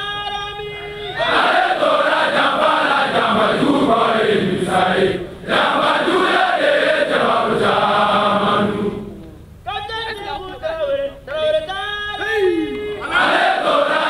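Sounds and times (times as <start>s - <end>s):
group singing in chorus: 1.2s - 9.2s, 13.0s - 14.0s.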